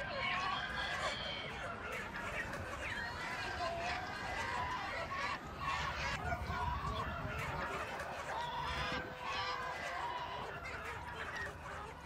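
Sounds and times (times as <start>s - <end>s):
recorded chicken squawks over loudspeaker: 0.0s - 12.0s.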